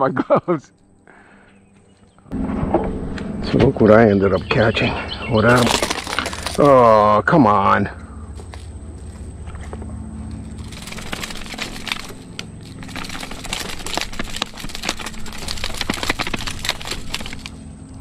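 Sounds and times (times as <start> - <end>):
low steady hum: 0.0 - 18.0
rapid clicking and rattling: 5.5 - 7.0, 10.6 - 17.6.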